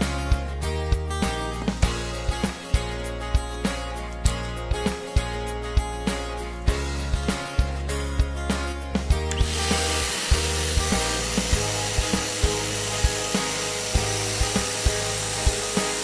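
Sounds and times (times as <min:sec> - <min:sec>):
background music with beat: 0:00.0 - 0:16.0
vacuum cleaner running: 0:09.3 - 0:16.0.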